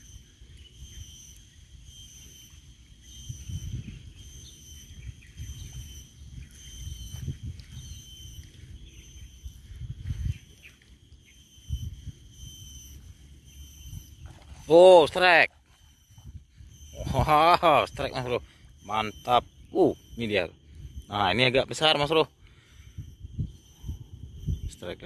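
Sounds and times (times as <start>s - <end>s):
insects buzzing: 0.0s - 25.0s
wind buffeting microphone: 3.2s - 10.8s, 16.0s - 18.2s, 22.8s - 24.9s.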